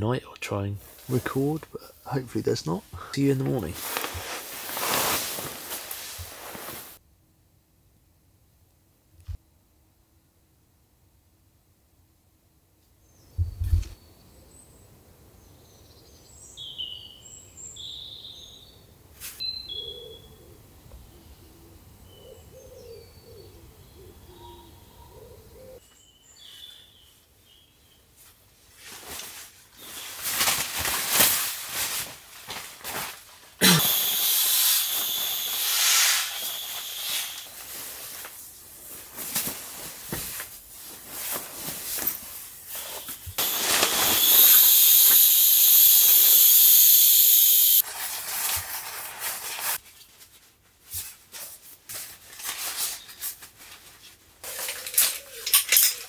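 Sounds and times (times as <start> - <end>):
rustling: 3.3 - 7.0, 28.1 - 56.0
air hissing out of sleeping pad: 3.4 - 7.0, 33.6 - 38.4, 42.8 - 49.8.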